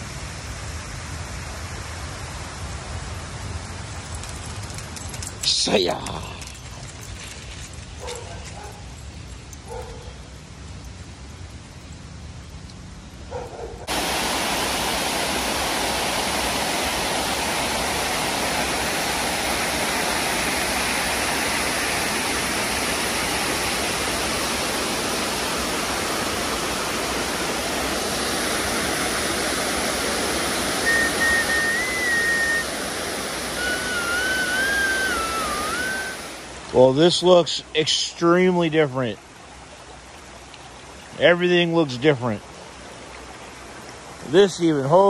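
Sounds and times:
whitewater roaring over rocks: 0:01.0 - 0:08.7, 0:13.8 - 0:38.5
high wavering whine: 0:30.6 - 0:36.5.

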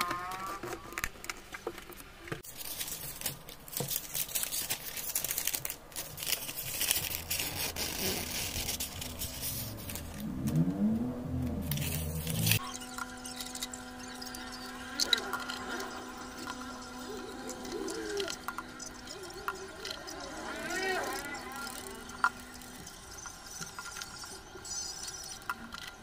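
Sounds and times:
paper receipt crinkling: 0:02.4 - 0:10.3.

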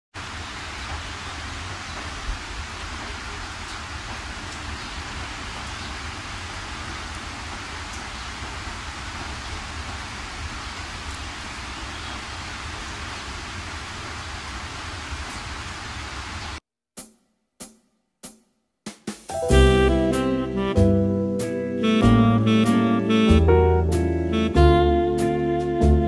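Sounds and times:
steady rain hiss: 0:00.2 - 0:16.6.

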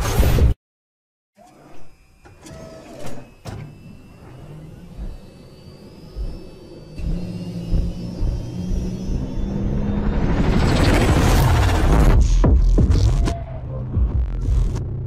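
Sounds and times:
faint rising whine: 0:01.4 - 0:12.6
loud mechanical rumble with hum: 0:01.4 - 0:15.0
low rumble: 0:04.7 - 0:15.0.

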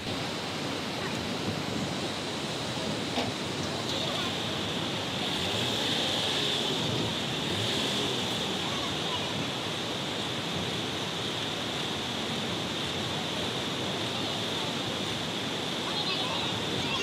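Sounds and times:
steady rushing noise: 0:00.0 - 0:17.0
faint voices of people: 0:02.8 - 0:04.9, 0:08.2 - 0:10.0, 0:12.8 - 0:17.0.

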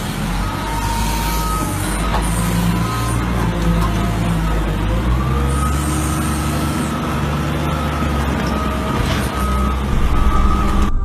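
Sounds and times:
diesel engine running: 0:00.0 - 0:11.0
high whine: 0:09.9 - 0:11.0.

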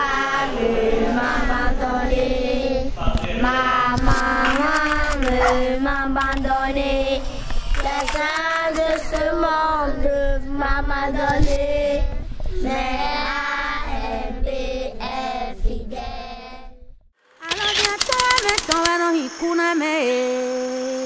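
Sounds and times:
children singing: 0:00.0 - 0:16.7.

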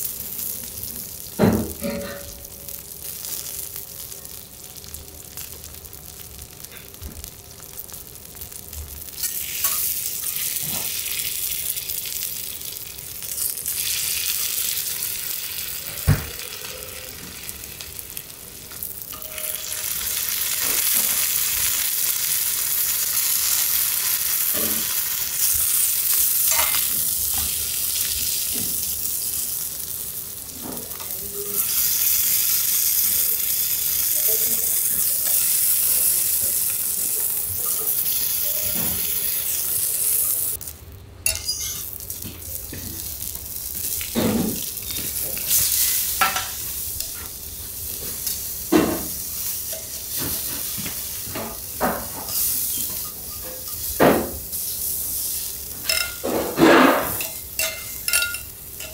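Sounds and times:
prawns sizzling on griddle: 0:00.0 - 0:58.9
metal spatulas tapping: 0:41.3 - 0:41.9, 0:57.2 - 0:58.9.

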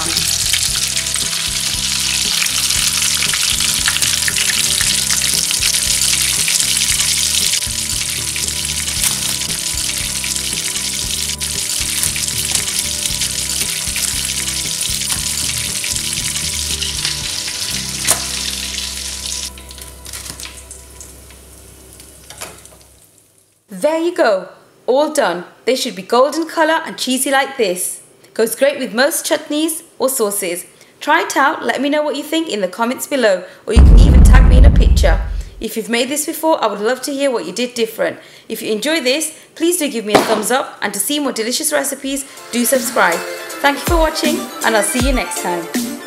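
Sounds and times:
oil sizzling and crackling: 0:00.0 - 0:23.6.

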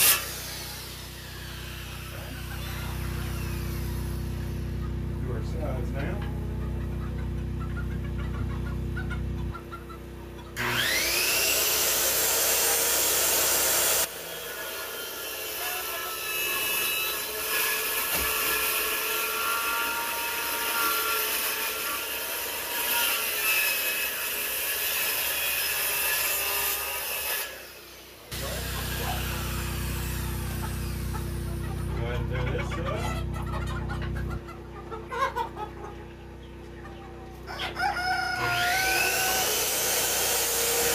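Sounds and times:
circular saw cutting plywood: 0:00.0 - 0:06.2, 0:10.6 - 0:33.5, 0:38.0 - 0:40.9.

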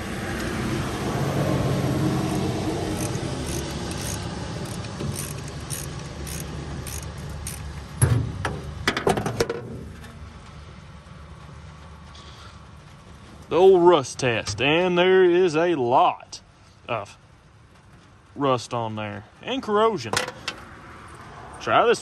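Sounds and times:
ratchet wrench clicking: 0:02.2 - 0:07.7.

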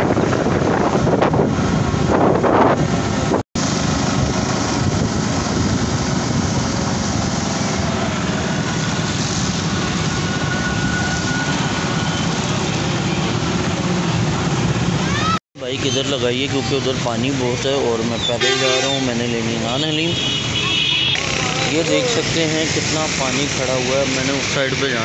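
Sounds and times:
wind on microphone: 0:00.0 - 0:10.7.

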